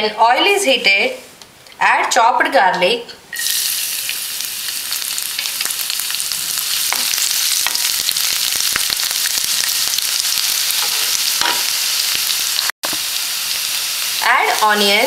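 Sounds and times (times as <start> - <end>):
garlic sizzling in hot oil: 3.4 - 15.0.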